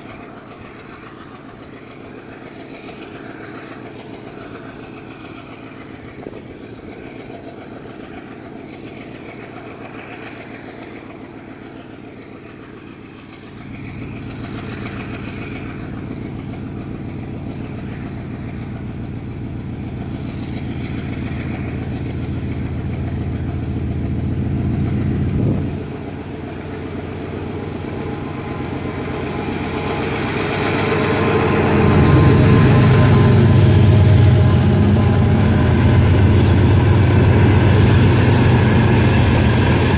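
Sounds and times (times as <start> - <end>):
diesel locomotive engine passing: 0.0 - 39.9.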